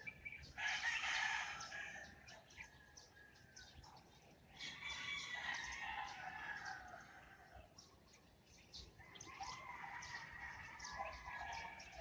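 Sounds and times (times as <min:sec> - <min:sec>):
small birds chirping: 0:00.0 - 0:12.0
rooster crowing: 0:00.6 - 0:02.0.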